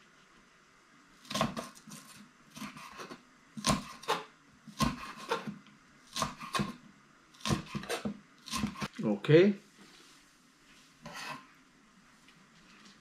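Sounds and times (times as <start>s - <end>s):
knife slicing on cutting board: 1.3s - 5.5s.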